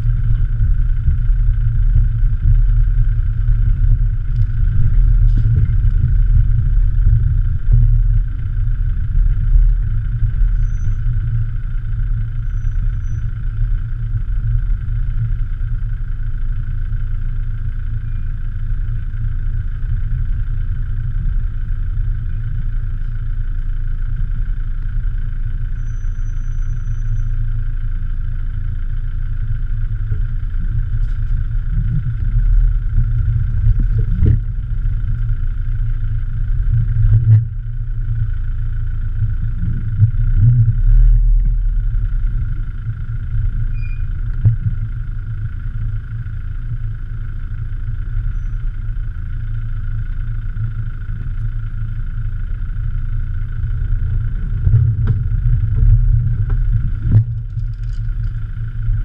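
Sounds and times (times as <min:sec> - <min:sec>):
diesel engine low rumble: 0:00.0 - 0:59.0
truck knocking over ruts: 0:30.0 - 0:35.4, 0:53.7 - 0:59.0.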